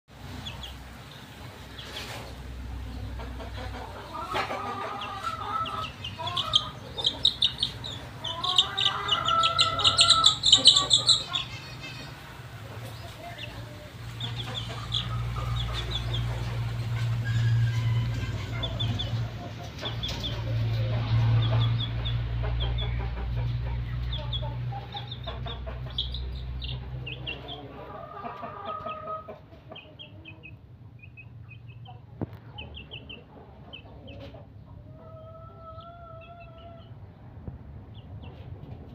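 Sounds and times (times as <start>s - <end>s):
steady low hum: 0.1s - 28.0s
young chicken squawking and peeping: 0.2s - 38.9s.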